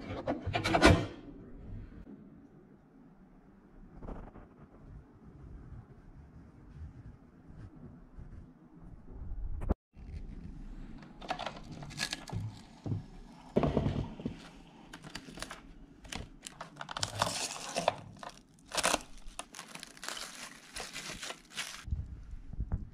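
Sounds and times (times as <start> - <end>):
cling film crinkling: 10.0 - 12.8, 14.8 - 21.9.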